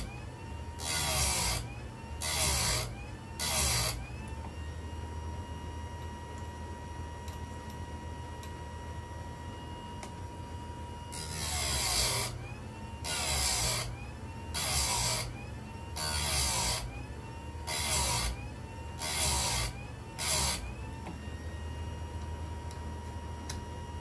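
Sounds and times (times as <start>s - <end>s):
sharpener motor running: 0.0s - 4.7s, 11.0s - 21.5s
grinding wheel rasping on chain: 0.8s - 4.0s, 11.1s - 12.4s, 13.0s - 13.9s, 14.5s - 15.3s, 16.0s - 16.9s, 17.6s - 18.4s, 19.0s - 20.7s.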